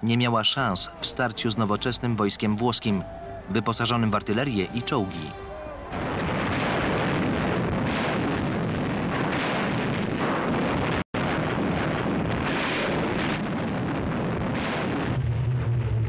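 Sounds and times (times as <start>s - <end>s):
artillery explosions: 5.7s - 16.0s.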